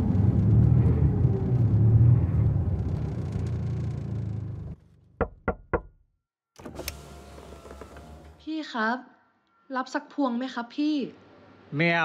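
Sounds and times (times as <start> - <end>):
traffic engine rumble: 0.0 - 4.8.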